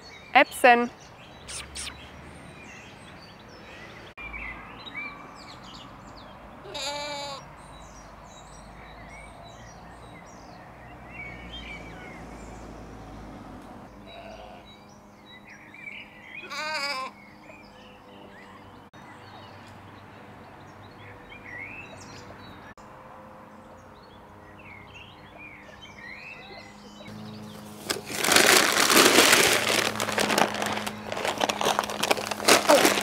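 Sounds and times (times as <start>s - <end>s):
small birds chirping: 0.0s - 12.8s, 14.0s - 22.8s, 23.6s - 33.0s
sheep bleating: 6.6s - 7.4s, 14.0s - 14.7s, 16.4s - 17.2s.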